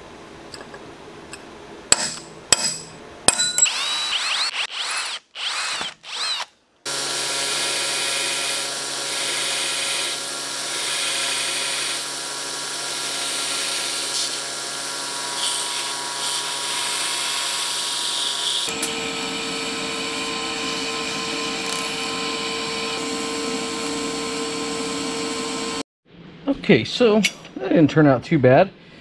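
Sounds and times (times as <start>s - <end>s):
belt grinder grinding metal: 3.4s - 25.8s
electric drill boring metal: 3.5s - 25.8s.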